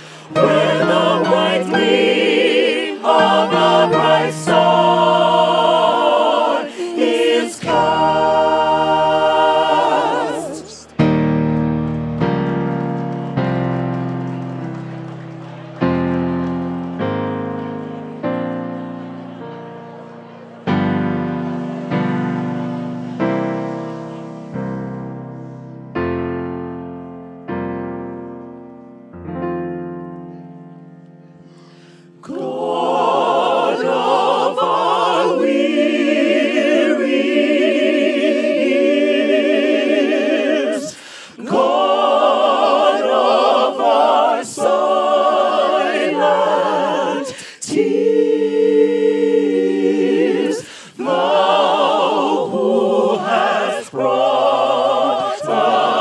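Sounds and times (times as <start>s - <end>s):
choir singing: 0.0s - 14.7s, 15.8s - 26.0s, 32.0s - 56.0s
keyboard chords: 0.2s - 6.4s, 7.1s - 34.0s.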